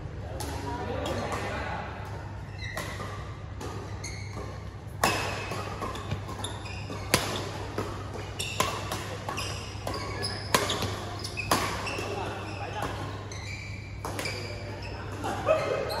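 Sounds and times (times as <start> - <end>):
shoes squeaking on court: 2.4 - 16.0
rackets hitting shuttlecock: 2.7 - 13.1, 14.0 - 15.4.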